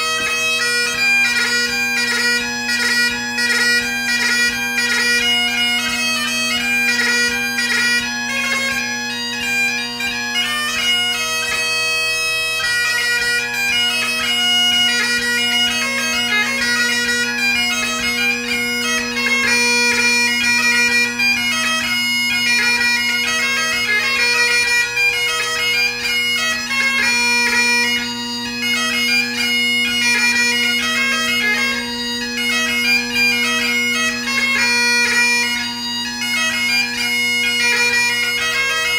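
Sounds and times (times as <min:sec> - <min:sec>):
bagpipe playing: 0:00.0 - 0:38.9.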